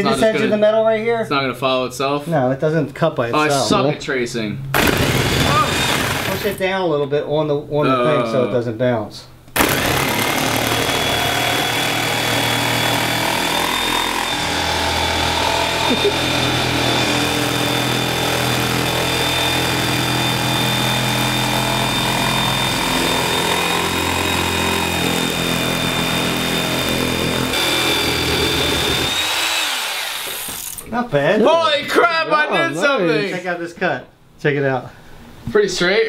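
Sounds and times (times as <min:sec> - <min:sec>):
jigsaw cutting panel: 0:04.8 - 0:06.6, 0:09.6 - 0:30.8.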